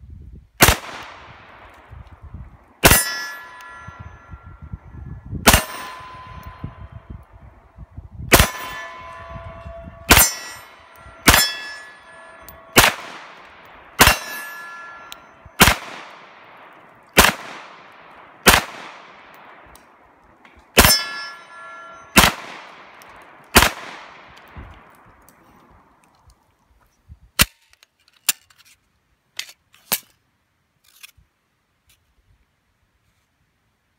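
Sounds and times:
pistol shots with echo: 0.6 - 1.8, 5.4 - 7.0, 8.3 - 19.7, 20.7 - 24.6
steel target ringing ping: 2.8 - 7.4, 8.3 - 15.8, 20.8 - 22.4.

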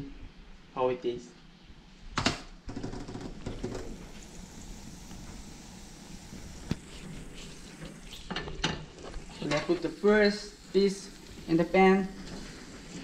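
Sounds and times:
butter sizzling in a frying pan: 8.9 - 13.0.

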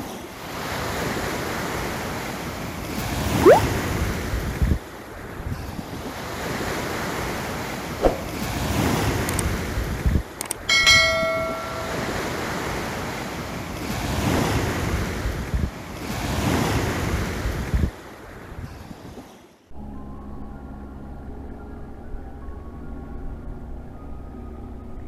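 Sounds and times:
click: 9.3 - 9.5, 10.4 - 10.6
bright bell-like ding: 10.7 - 12.5
sea surf washing: 10.8 - 17.6.

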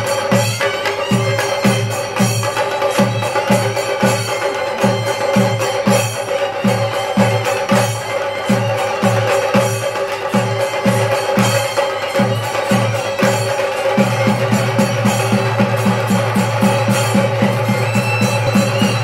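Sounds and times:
drums beating fast rhythm: 0.0 - 19.0.

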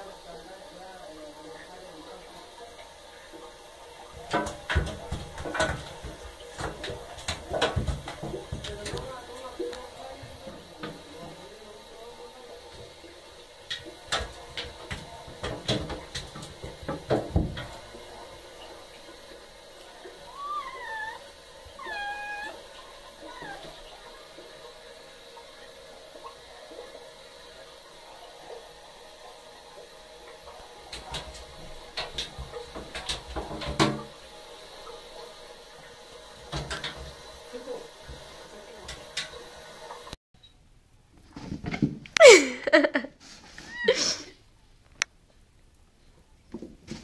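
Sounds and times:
cat claws scrabbling in bathtub: 4.1 - 11.4, 13.7 - 18.4, 30.9 - 34.1.

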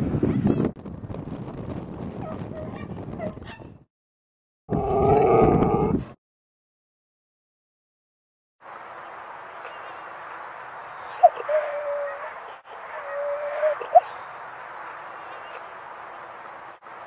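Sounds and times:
dog whining: 10.9 - 12.3, 12.9 - 14.4.

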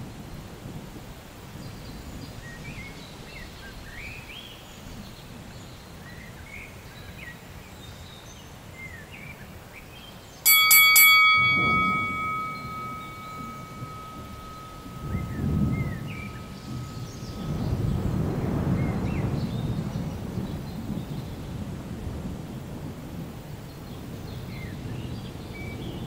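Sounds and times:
birds chirping: 10.1 - 20.9
bell-like chime ringing: 10.5 - 18.4.

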